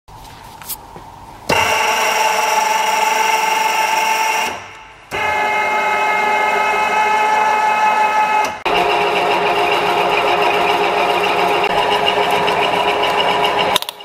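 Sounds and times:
pillar drill whining: 0:03.8 - 0:14.0.

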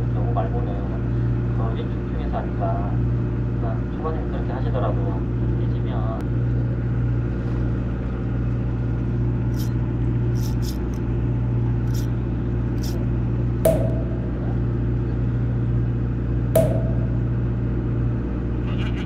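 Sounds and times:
boat engine running: 0:00.0 - 0:19.0
sharp ringing knocks: 0:13.6 - 0:15.0, 0:16.6 - 0:17.8.

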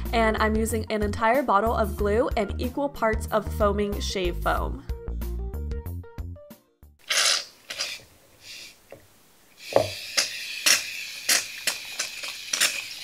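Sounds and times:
aerosol foam spraying: 0:07.1 - 0:08.8, 0:09.6 - 0:13.0.

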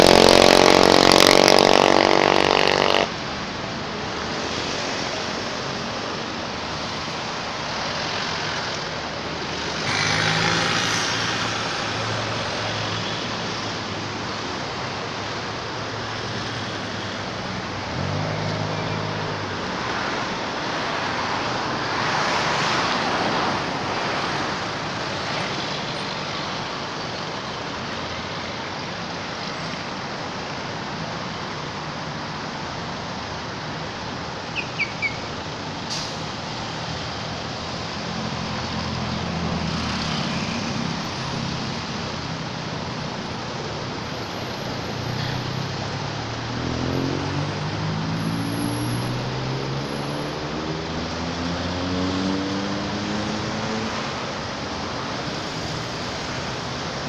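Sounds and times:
traffic passing: 0:00.0 - 0:57.0.

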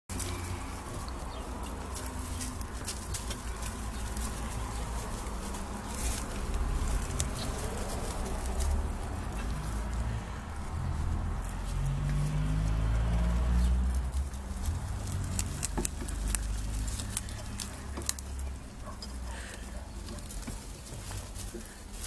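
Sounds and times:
rabbits scrabbling in straw: 0:00.1 - 0:22.0
low rumble: 0:03.4 - 0:19.0.

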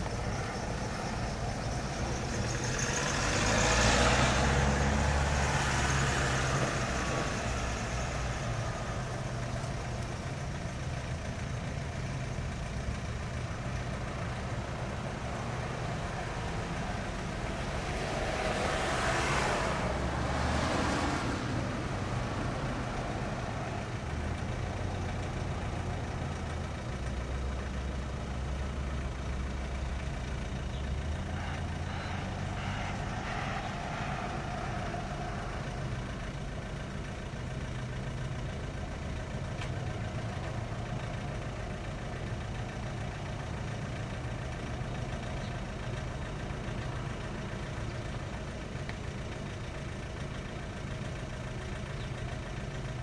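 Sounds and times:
low engine hum: 0:00.0 - 0:53.0.

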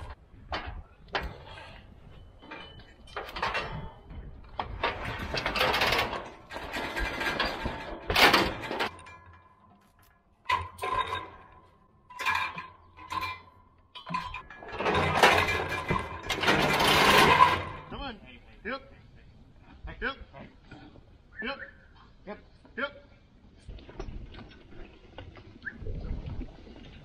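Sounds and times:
metal clanks and rattles of cattle chute: 0:00.0 - 0:18.2.

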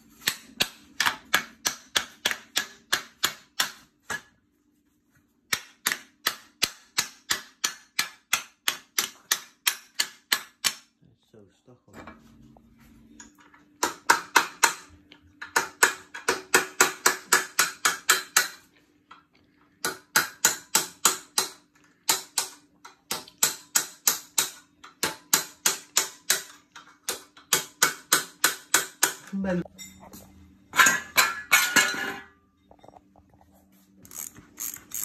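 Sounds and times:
hammer striking steel bar: 0:00.2 - 0:04.3, 0:05.5 - 0:10.9, 0:15.6 - 0:18.6, 0:19.8 - 0:26.5, 0:27.1 - 0:29.2.

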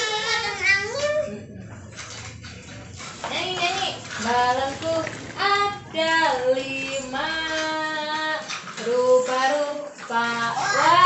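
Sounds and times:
child singing: 0:00.0 - 0:01.3, 0:09.3 - 0:11.0.

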